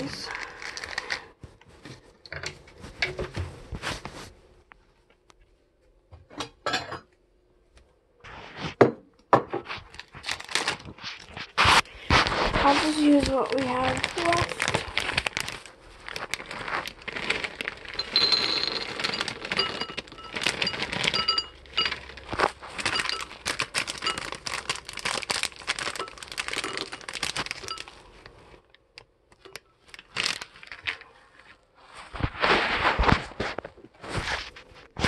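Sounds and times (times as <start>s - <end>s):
plastic bag crinkling: 0.0s - 1.8s, 9.6s - 31.4s
cereal rattling into a bowl: 12.6s - 28.1s.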